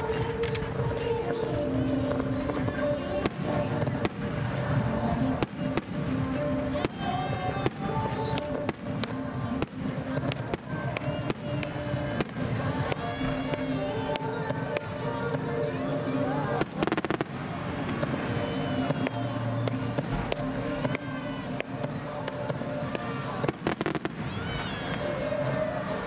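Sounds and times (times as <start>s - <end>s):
music with long held notes: 0.0s - 26.0s.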